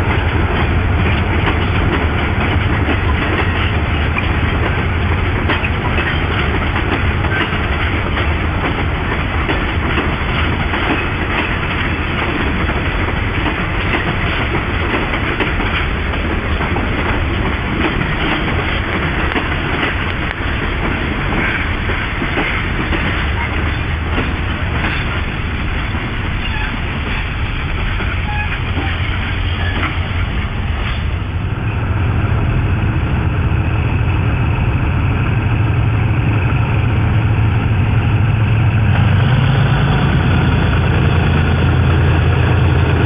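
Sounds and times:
small rail clicks: 0.0 - 31.1
train wheels rumbling on rail: 0.0 - 43.0.

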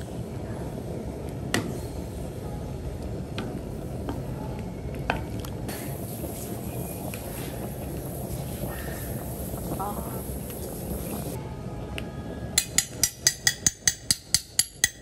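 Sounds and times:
water boiling in a pan: 4.9 - 11.4.

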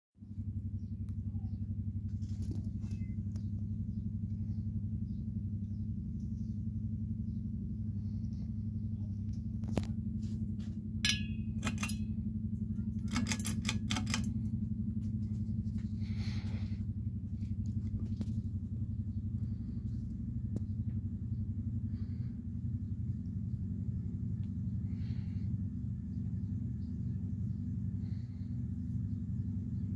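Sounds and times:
ceiling fan motor hum: 0.3 - 29.9
sharp clicks and clinks: 11.0 - 12.2, 12.9 - 14.4.

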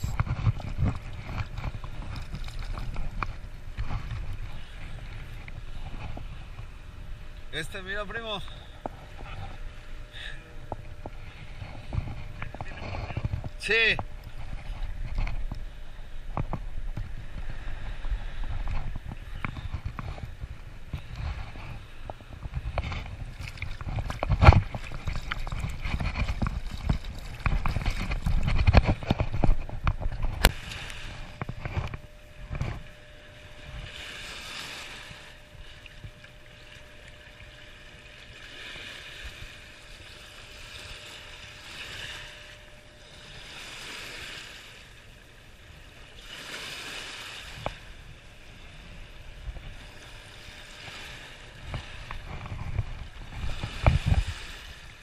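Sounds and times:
river water washing against rocks: 16.3 - 44.7.

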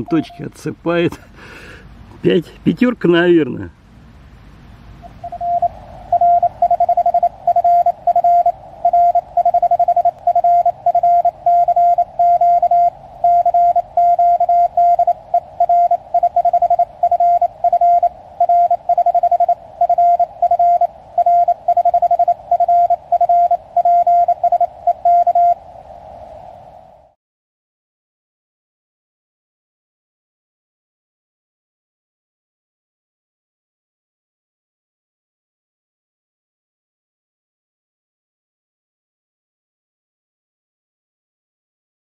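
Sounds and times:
morse code beeps: 0.0 - 0.5, 5.0 - 25.6
faint hiss: 0.0 - 27.2.

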